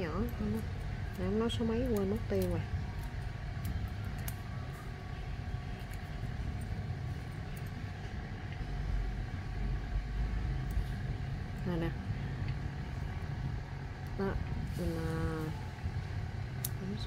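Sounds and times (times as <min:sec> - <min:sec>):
low rumble: 0:00.0 - 0:17.0.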